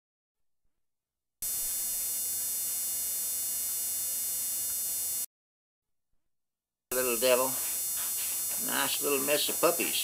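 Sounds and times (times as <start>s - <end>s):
electrical buzz: 1.4s - 5.3s, 6.9s - 10.0s.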